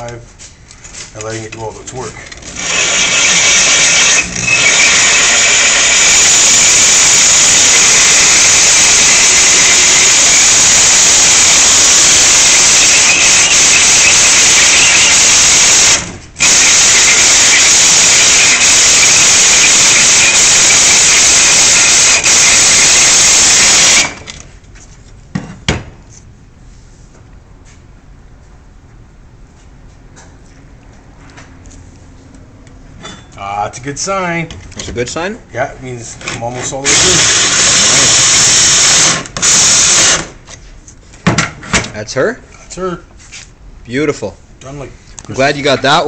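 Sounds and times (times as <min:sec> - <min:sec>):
drill grinding into tile: 0:02.4 - 0:24.3, 0:36.8 - 0:40.3.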